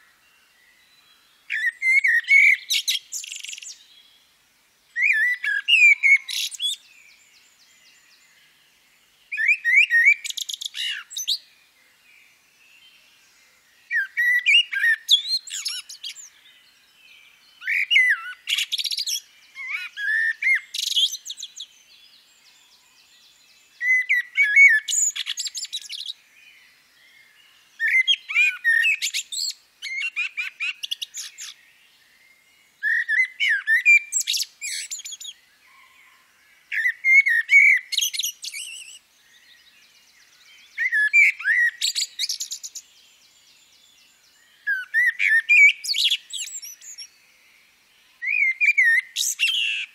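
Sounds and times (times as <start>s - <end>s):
songbird singing: 0.0s - 49.9s.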